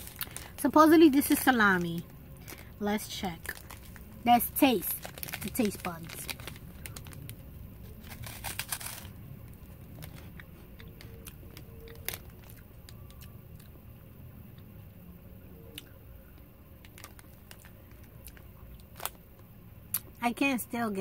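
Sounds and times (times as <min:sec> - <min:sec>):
chewing with soft crunches: 0:05.0 - 0:20.2
crunchy snack bite: 0:08.0 - 0:13.7.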